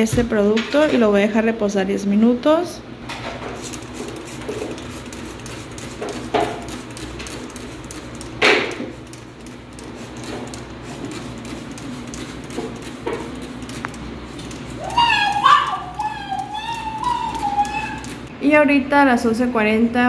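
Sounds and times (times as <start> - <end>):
spray bottle squirting: 3.3 - 18.3.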